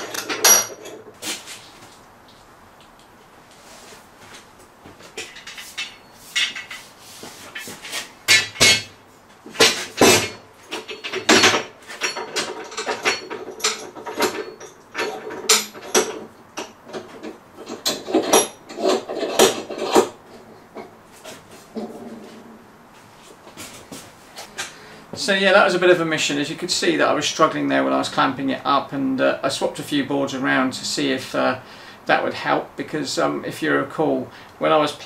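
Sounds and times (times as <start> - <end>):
steel clamps knocking and clanking: 0.0 - 1.1, 8.3 - 20.1.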